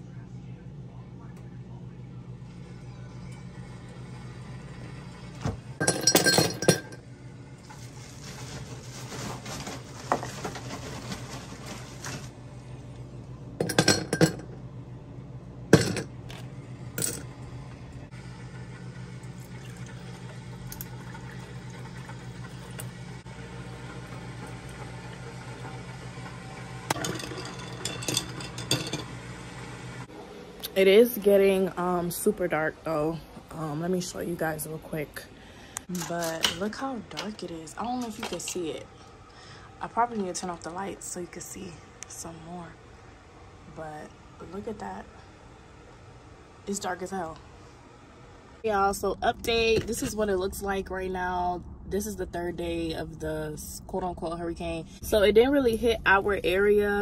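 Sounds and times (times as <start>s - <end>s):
steady low hum: 0.0s - 57.0s
dishes and cups clinking: 5.8s - 7.0s, 13.6s - 14.6s, 15.8s - 16.1s, 26.9s - 29.2s
liquid pouring: 18.8s - 28.8s.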